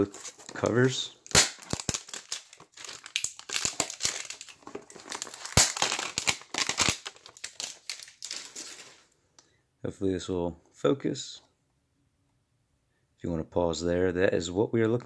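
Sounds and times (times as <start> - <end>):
cardboard packaging tearing: 0.0 - 9.0.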